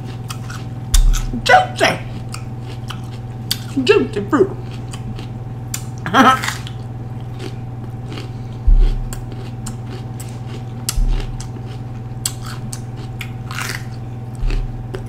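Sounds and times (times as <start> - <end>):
chewing crunchy pepper: 0.0 - 1.4, 2.0 - 3.9, 4.5 - 15.0
steady low hum: 0.0 - 15.0
dull low thumps: 0.9 - 1.5, 8.6 - 9.7, 10.9 - 11.7, 14.4 - 15.0.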